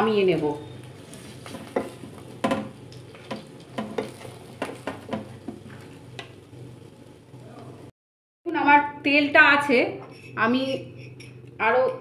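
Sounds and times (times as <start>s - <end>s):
hot oil sizzling: 0.0s - 7.9s.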